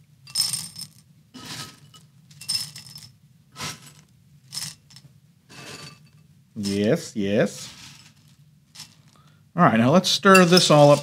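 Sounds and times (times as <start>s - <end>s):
dry cereal rattling into bowl: 0.3s - 5.0s, 6.6s - 7.0s, 7.6s - 9.3s, 10.3s - 11.0s.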